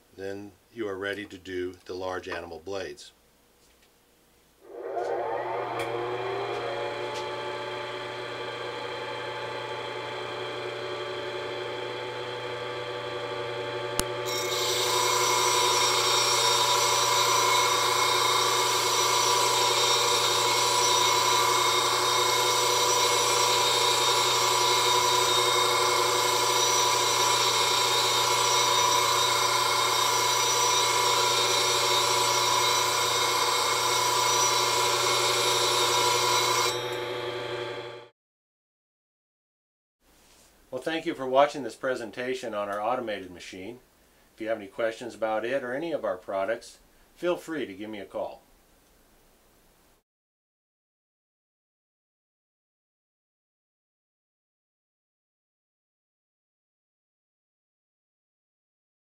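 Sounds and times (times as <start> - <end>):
machine motor humming: 4.6 - 38.1
blades grinding on abrasive disc: 14.0 - 37.2.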